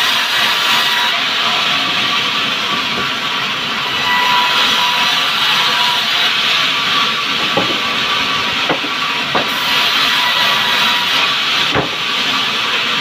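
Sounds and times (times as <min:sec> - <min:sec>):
band saw cutting timber: 0:00.0 - 0:13.0
timber knocking on saw table: 0:07.4 - 0:09.9, 0:11.2 - 0:12.2.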